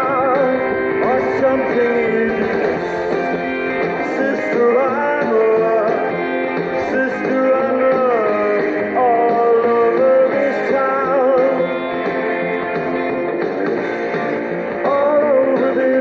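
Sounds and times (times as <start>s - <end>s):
rock music with bending guitar: 0.0s - 16.0s.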